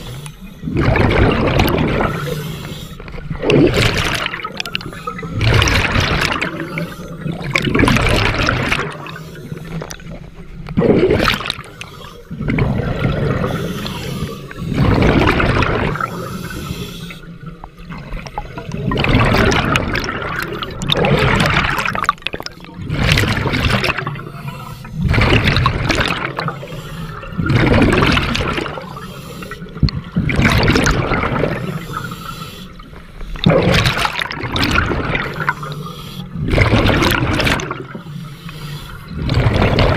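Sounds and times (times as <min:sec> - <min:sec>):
diver breathing through regulator: 0:00.0 - 0:00.9, 0:02.0 - 0:03.4, 0:06.5 - 0:07.6, 0:11.5 - 0:12.5, 0:13.2 - 0:15.3, 0:15.9 - 0:17.5, 0:24.0 - 0:25.3, 0:26.4 - 0:27.4, 0:28.7 - 0:29.9, 0:31.5 - 0:33.5, 0:35.2 - 0:36.5, 0:37.8 - 0:39.4
gurgling exhaled bubbles: 0:00.0 - 0:39.9.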